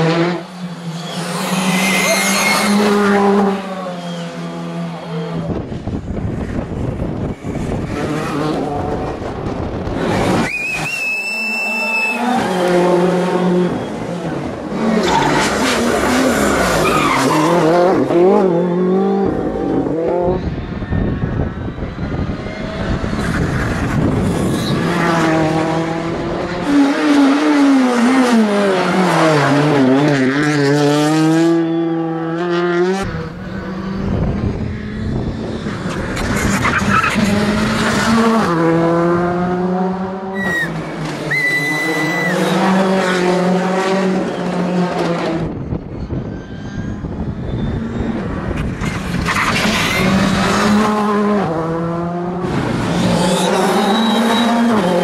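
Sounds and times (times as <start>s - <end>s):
rally car engines revving past: 0.0s - 55.0s
tyre squeal: 0.9s - 5.5s, 10.4s - 13.0s, 16.4s - 18.8s, 40.4s - 42.7s, 45.9s - 50.3s, 53.0s - 55.0s.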